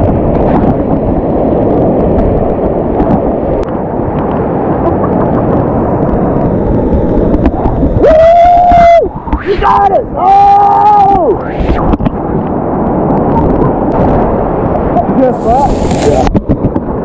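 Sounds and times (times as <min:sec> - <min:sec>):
wind buffeting microphone: 0:00.0 - 0:17.0
whitewater rushing: 0:00.6 - 0:17.0
person yelling: 0:08.0 - 0:11.4.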